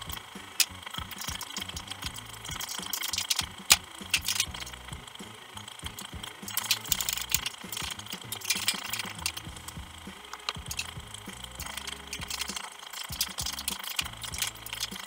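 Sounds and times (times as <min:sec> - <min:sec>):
metal parts and tools clattering: 0:06.5 - 0:09.7.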